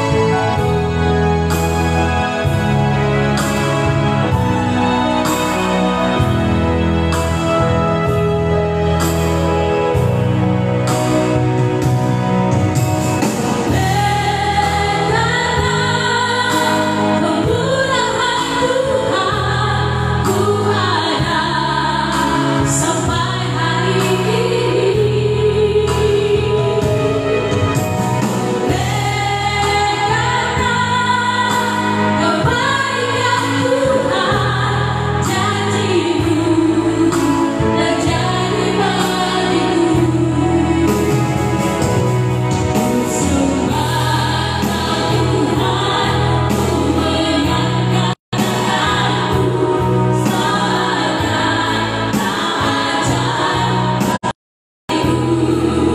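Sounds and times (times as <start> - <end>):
electronic keyboard: 0.0 - 55.9
women singing gospel song: 13.6 - 54.3, 54.9 - 55.9.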